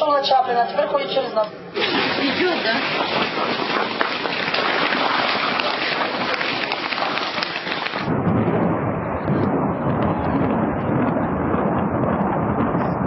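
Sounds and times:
footsteps: 1.8 - 8.1
suitcase wheels rattling on paving: 1.8 - 8.1.

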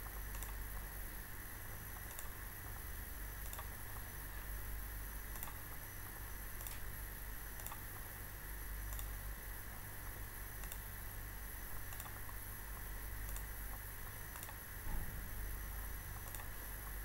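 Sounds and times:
electrical hum and hiss: 0.0 - 17.0
computer mouse clicks: 0.3 - 0.6, 2.0 - 2.4, 3.4 - 3.7, 5.3 - 5.8, 6.6 - 6.9, 7.6 - 7.8, 8.9 - 9.2, 10.6 - 10.9, 11.8 - 12.4, 13.2 - 13.5, 14.3 - 14.6, 16.2 - 17.0.

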